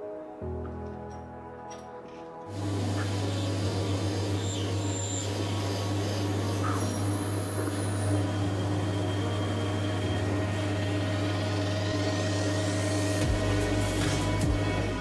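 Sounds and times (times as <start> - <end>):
tool cutting metal hiss: 2.5 - 8.8
lathe motor hum: 2.5 - 15.0.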